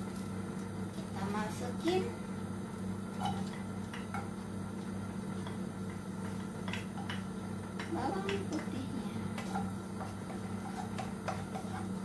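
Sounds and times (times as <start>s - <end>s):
steady low hum: 0.0s - 12.0s
wooden spatula tapping a plate: 6.6s - 8.7s, 9.3s - 11.8s.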